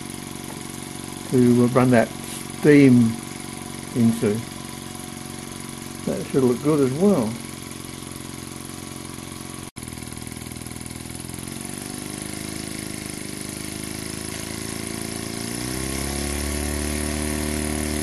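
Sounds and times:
model steam engine exhaust beats: 0.0s - 18.0s.

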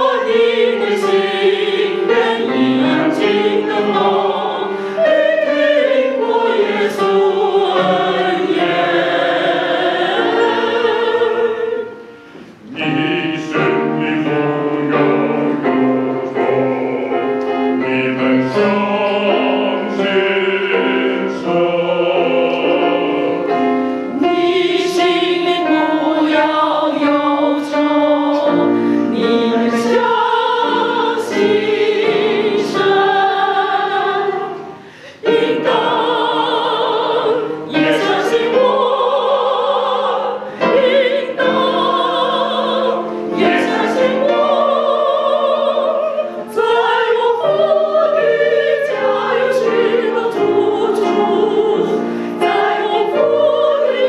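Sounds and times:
mixed choir singing: 0.0s - 54.0s.

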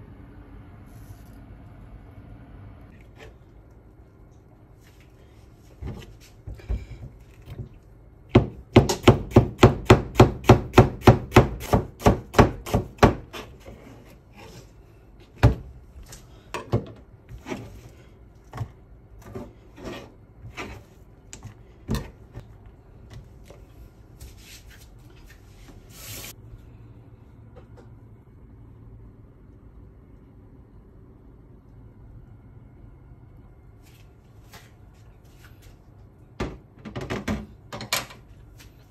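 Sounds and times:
knife slicing onion: 8.4s - 14.6s.

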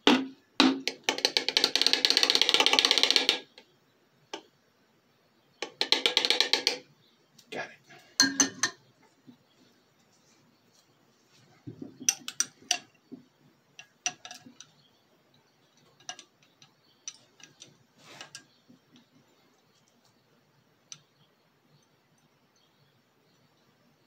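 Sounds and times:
glassware clinking: 8.2s - 8.8s.

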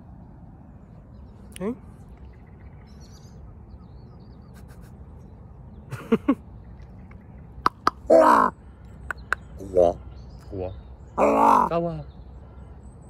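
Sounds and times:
raven calls: 7.6s - 10.0s, 11.2s - 11.8s.

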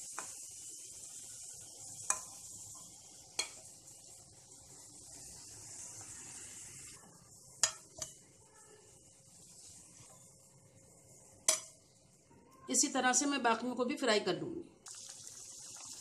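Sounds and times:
hot oil sizzling: 0.0s - 12.0s, 14.8s - 16.0s
metal spoon clinking on pan: 2.0s - 3.6s, 7.6s - 8.2s, 11.4s - 11.8s.

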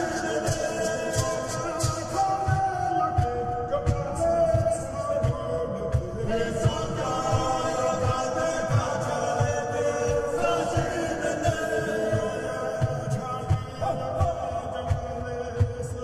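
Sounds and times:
group of voices chanting: 0.0s - 2.6s, 6.4s - 13.6s
steady low beat: 0.0s - 16.0s.

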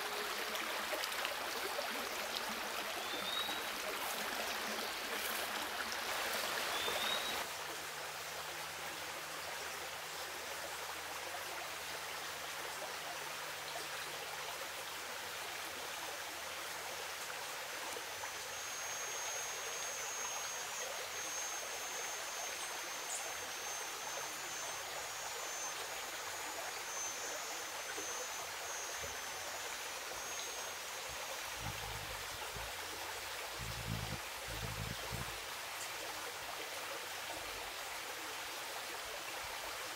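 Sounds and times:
stream rushing: 0.0s - 11.2s.

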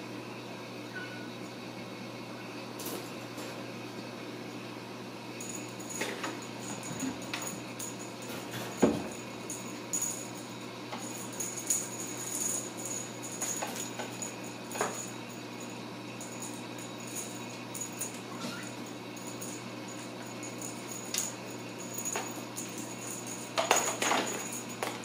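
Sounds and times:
small bell jingling: 5.4s - 8.2s, 9.1s - 25.0s.

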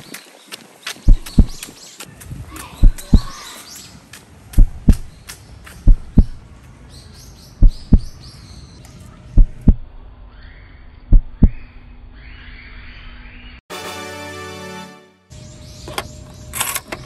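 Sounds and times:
birds chirping faintly: 0.0s - 13.6s.

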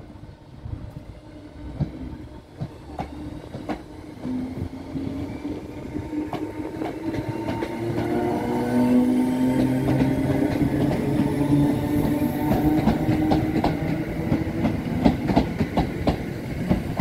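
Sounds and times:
low train rumble: 0.0s - 17.0s
train wheels clicking over rail joints: 9.4s - 17.0s.

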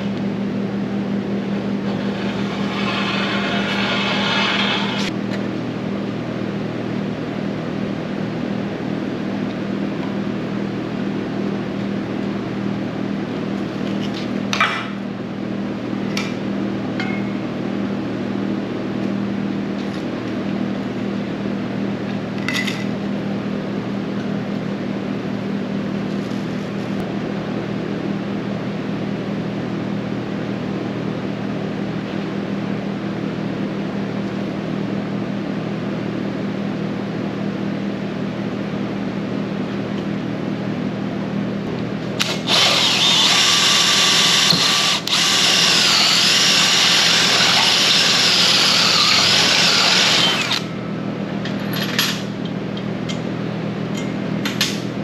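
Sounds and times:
steady machine hum: 0.0s - 55.0s.

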